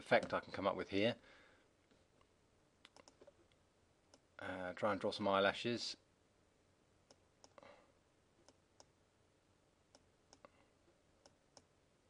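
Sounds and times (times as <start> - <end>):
computer mouse clicks: 2.2 - 4.2, 7.1 - 7.7.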